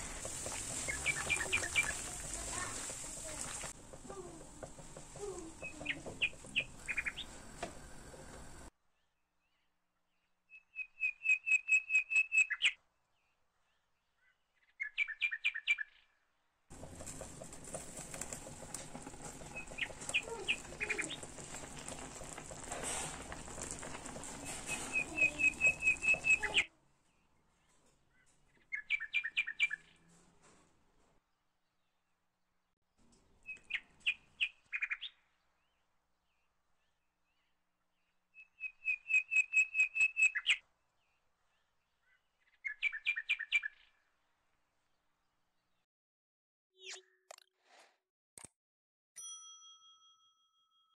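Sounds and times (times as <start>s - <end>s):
small bird chirping trills: 0.6s - 3.4s, 5.2s - 7.4s, 10.5s - 16.2s, 19.3s - 22.6s, 24.6s - 26.7s, 33.4s - 44.1s.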